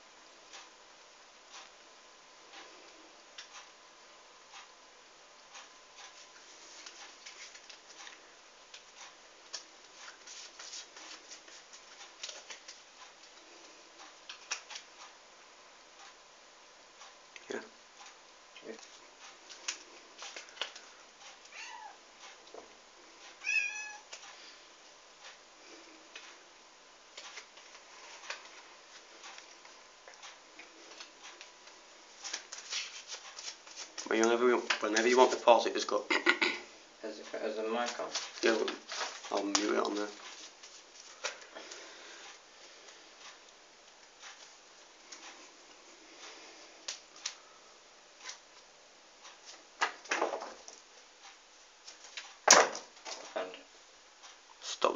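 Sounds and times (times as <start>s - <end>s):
cat meowing: 21.5s - 22.0s, 23.4s - 24.1s.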